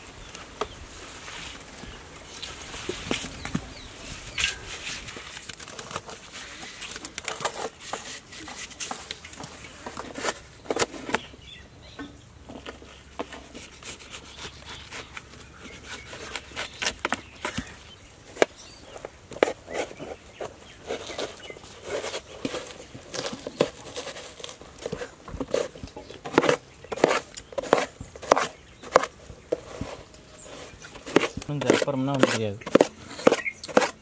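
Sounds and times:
knife cutting watermelon: 0:12.7 - 0:17.8, 0:19.3 - 0:34.0.

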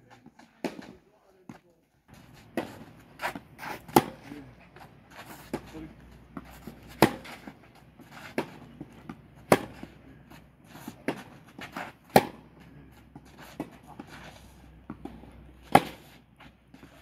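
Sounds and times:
tennis ball struck by racket: 0:00.6 - 0:01.0, 0:02.2 - 0:04.4, 0:06.3 - 0:10.0, 0:10.8 - 0:14.1, 0:14.8 - 0:16.2
tennis ball bouncing: 0:02.2 - 0:14.1, 0:14.8 - 0:17.0.

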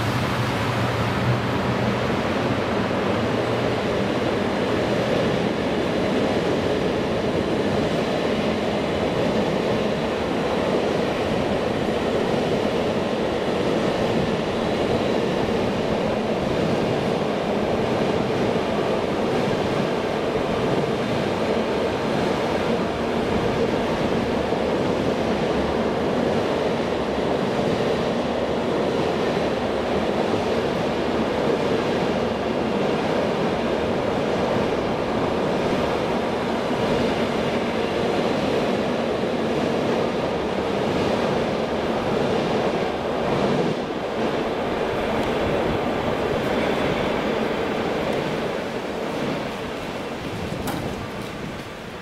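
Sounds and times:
diesel locomotive engine: 0:00.0 - 0:52.0
freight wagons rolling on rails: 0:41.6 - 0:52.0.

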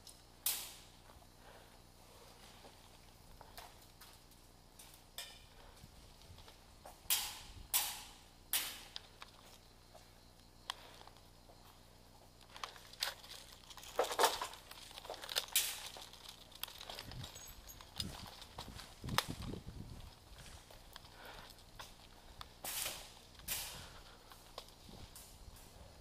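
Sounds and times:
footsteps crunching on gritty concrete: 0:09.1 - 0:26.0.

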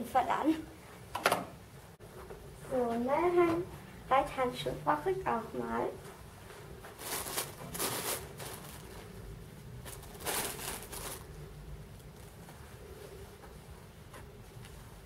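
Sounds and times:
gloves and packaging rustling: 0:06.6 - 0:12.6.

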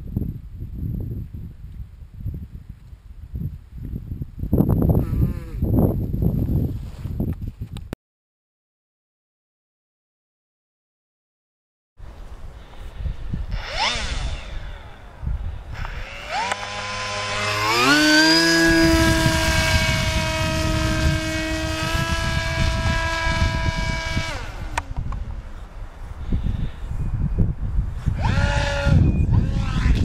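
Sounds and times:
low wind rumble on microphone: 0:00.0 - 0:08.0, 0:12.0 - 0:30.0
electric motor and propeller whining: 0:12.7 - 0:27.0, 0:27.9 - 0:30.0.

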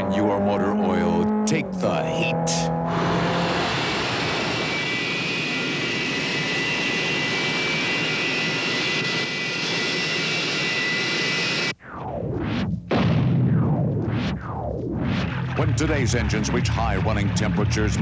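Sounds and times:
engine roar with high whine: 0:00.0 - 0:12.8.

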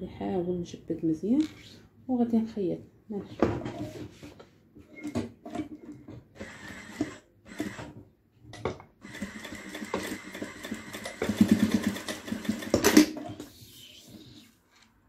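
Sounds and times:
sewing machine stitching: 0:05.0 - 0:08.0, 0:09.0 - 0:13.4.

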